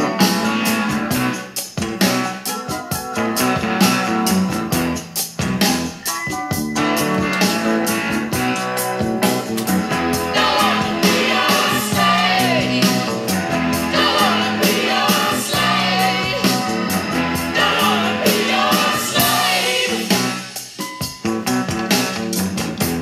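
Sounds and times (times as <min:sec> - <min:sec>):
song with singer and guitar: 0:00.0 - 0:23.0.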